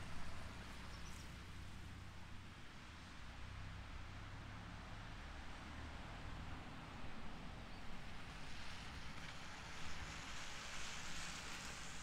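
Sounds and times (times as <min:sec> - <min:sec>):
rain hiss: 0:08.7 - 0:12.0.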